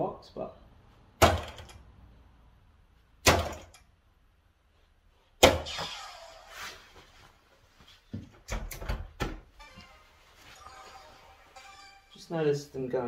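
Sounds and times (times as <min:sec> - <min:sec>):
darts hitting dartboard: 0:03.2 - 0:03.8
electronic sound effect: 0:09.6 - 0:12.5.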